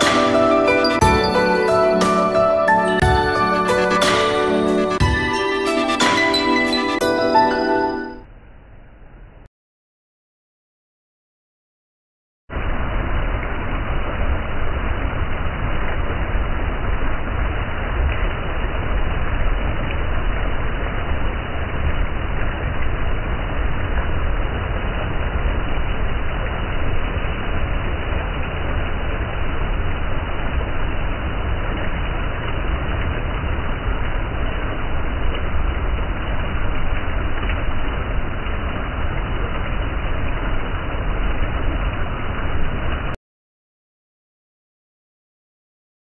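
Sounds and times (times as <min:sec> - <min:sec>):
mountain stream roaring over boulders: 0:12.5 - 0:43.2.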